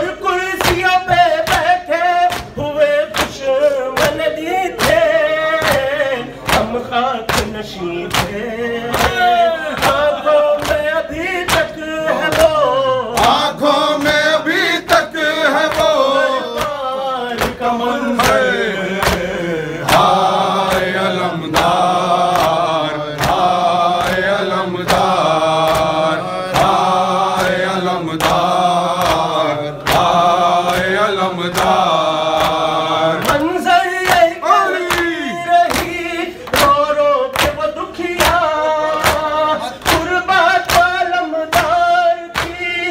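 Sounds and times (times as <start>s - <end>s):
men chanting a lament: 0.0s - 42.9s
sharp rhythmic strikes: 0.0s - 42.9s.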